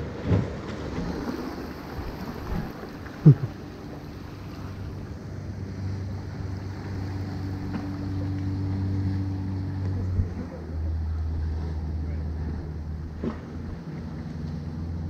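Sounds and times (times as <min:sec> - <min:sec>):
outboard motor passing: 0:00.0 - 0:15.0.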